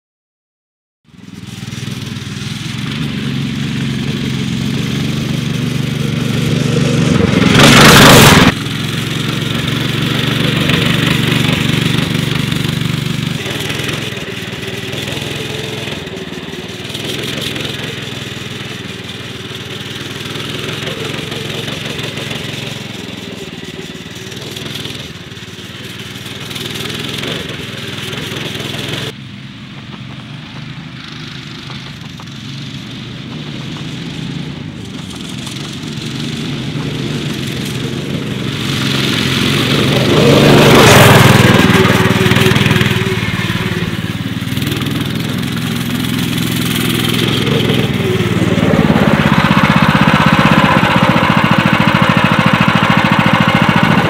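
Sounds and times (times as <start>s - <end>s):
go-kart engine droning: 1.1s - 54.0s
loud rushing burst: 1.7s - 25.0s, 36.0s - 54.0s.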